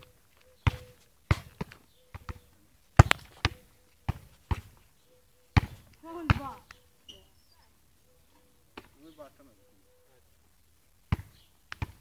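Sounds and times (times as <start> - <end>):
football thuds: 0.6 - 2.4, 3.0 - 4.8, 5.6 - 6.6, 11.1 - 12.0.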